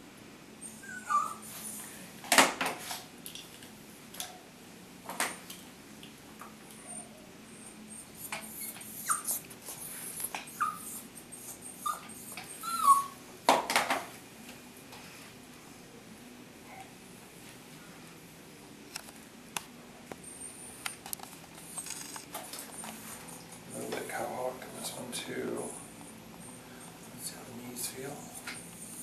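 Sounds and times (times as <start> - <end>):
puppy whimpering: 0.6 - 1.9, 6.7 - 13.2, 22.7 - 29.0.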